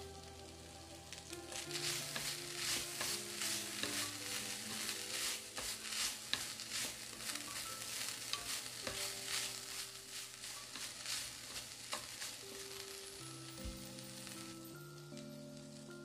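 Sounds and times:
squid sizzling in a pan: 0.0 - 16.0
chopsticks clicking against pan: 1.2 - 13.0.

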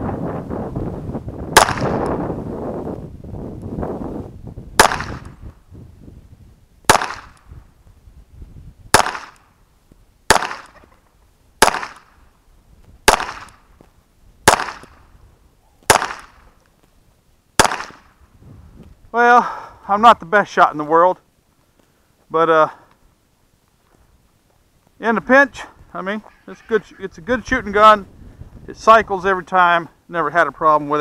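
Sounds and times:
wind noise on microphone: 0.0 - 9.6, 11.6 - 16.6, 17.6 - 19.2, 25.2 - 29.5
pistol shots: 1.6 - 2.1, 4.8 - 5.4, 6.9 - 7.5, 8.9 - 9.5, 10.3 - 10.9, 11.6 - 12.2, 13.0 - 13.6, 14.4 - 15.0, 15.9 - 16.5, 17.6 - 18.2.

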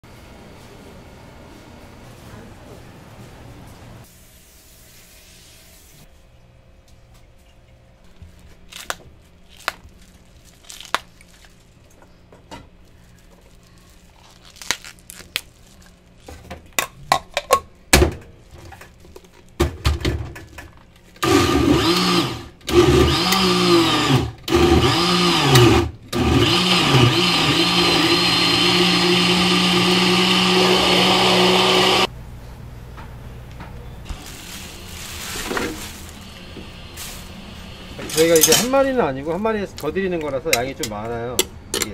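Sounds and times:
electric blender motor: 21.2 - 32.1.

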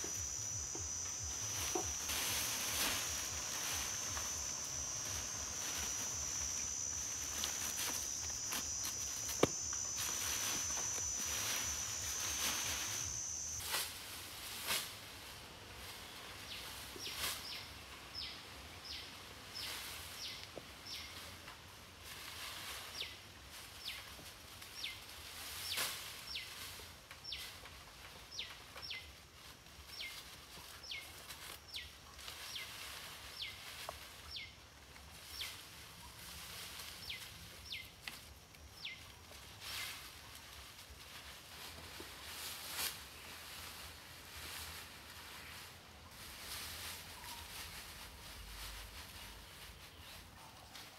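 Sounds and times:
high insect whine: 0.0 - 15.1
dry leaves rustling: 0.0 - 50.9.

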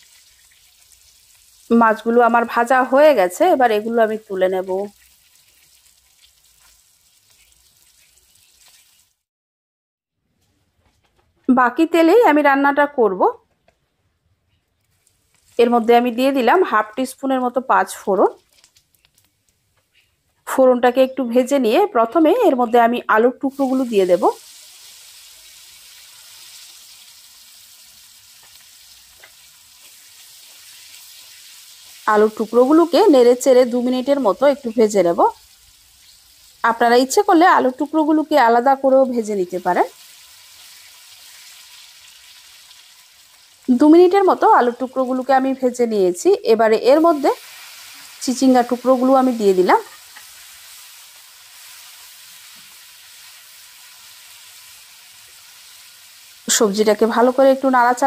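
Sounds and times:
potato wedges sizzling in oil: 0.0 - 9.3, 14.8 - 58.0.

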